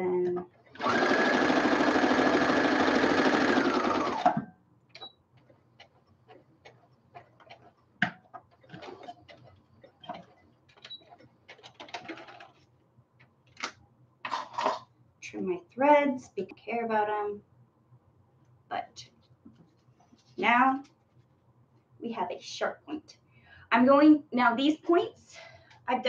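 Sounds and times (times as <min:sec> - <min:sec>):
sewing machine running: 0:00.7 - 0:04.4.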